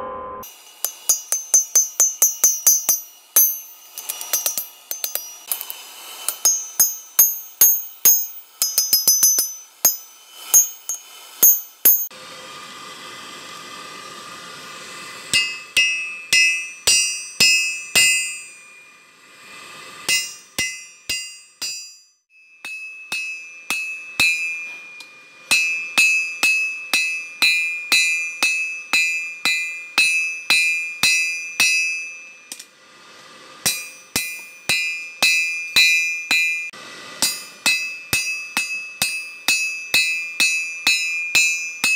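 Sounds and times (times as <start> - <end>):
steady hiss: 0.4 - 12.1, 13.3 - 21.7
hammer striking steel on anvil: 0.4 - 12.2, 15.3 - 19.0, 20.0 - 32.7, 33.6 - 41.9.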